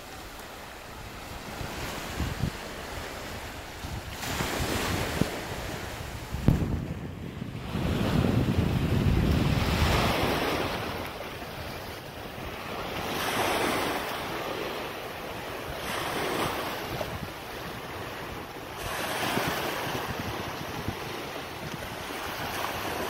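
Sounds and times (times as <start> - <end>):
wind rumbling on microphone: 0.0 - 23.0
small waves washing over rocks: 9.2 - 23.0.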